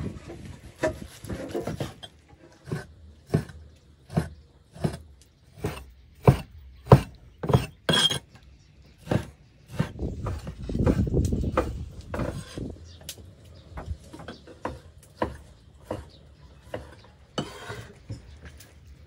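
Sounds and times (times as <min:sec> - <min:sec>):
cleaver chopping on wooden board: 0:02.7 - 0:05.0, 0:05.6 - 0:07.8, 0:14.6 - 0:17.7.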